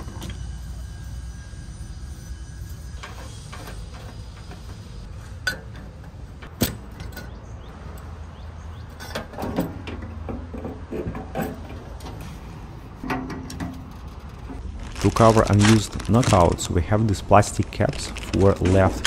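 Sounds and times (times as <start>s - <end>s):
metal conduit knocking and scraping: 9.0s - 12.4s, 13.0s - 14.6s
steady low rumble: 13.7s - 19.0s.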